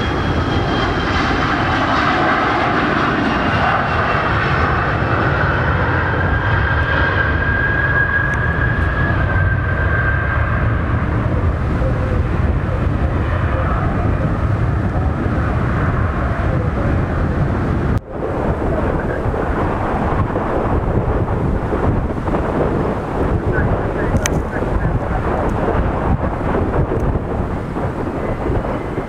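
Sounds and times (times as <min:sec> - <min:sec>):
distant jet noise: 0:00.0 - 0:29.0
jet engines at takeoff: 0:00.0 - 0:29.0
wind buffeting microphone: 0:00.0 - 0:29.0.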